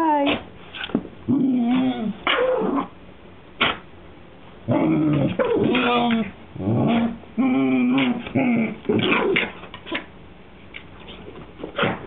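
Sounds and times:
dogs whining and growling: 1.2s - 3.0s, 4.6s - 10.0s
dog yip: 2.2s - 2.9s.

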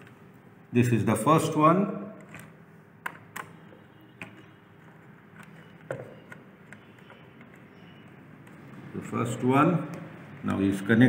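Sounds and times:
screwdriver clicks and taps: 5.4s - 7.6s.

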